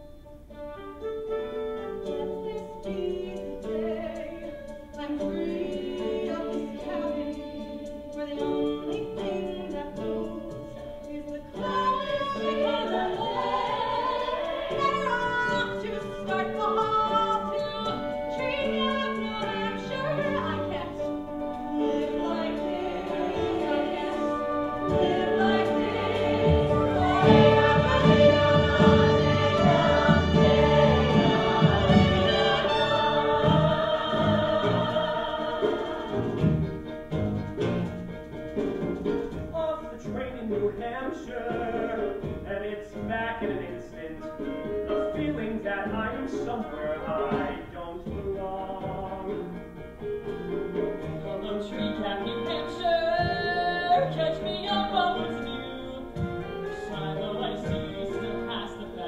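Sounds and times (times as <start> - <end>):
chorus singing: 2.2 - 8.4, 11.3 - 37.0, 51.3 - 59.0
orchestra playing: 7.0 - 42.8.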